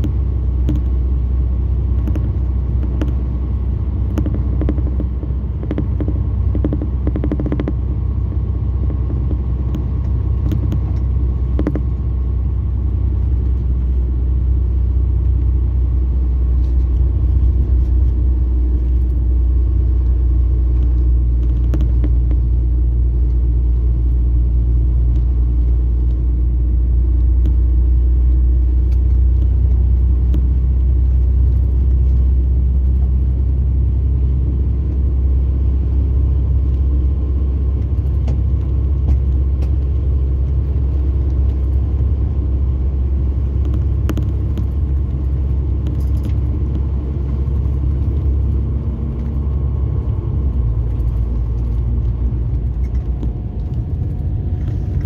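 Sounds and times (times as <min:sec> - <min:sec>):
bus engine low drone: 0:00.0 - 0:55.0
faint clicks and rattles: 0:01.9 - 0:03.3, 0:04.0 - 0:12.3, 0:16.5 - 0:24.2, 0:43.2 - 0:55.0.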